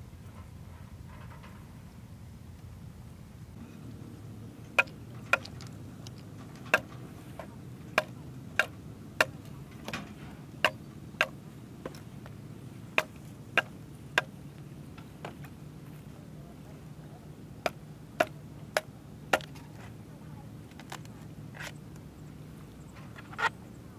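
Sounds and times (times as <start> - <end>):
low steady background noise: 0.0 - 23.9
knife chopping bamboo: 6.7 - 9.4, 13.0 - 14.3, 17.6 - 19.6.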